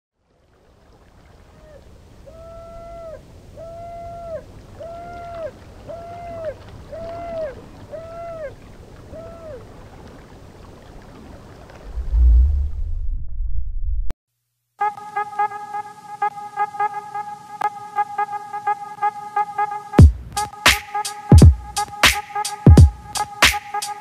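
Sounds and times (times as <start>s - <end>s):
low rumble: 11.8s - 14.1s.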